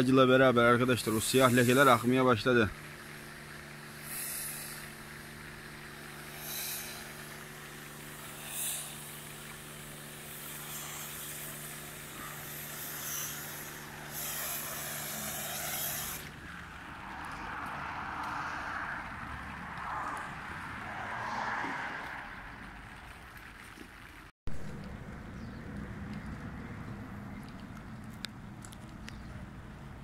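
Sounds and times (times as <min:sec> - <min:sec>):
pressure washer hum: 0:00.3 - 0:22.9
spray hiss: 0:00.8 - 0:16.6.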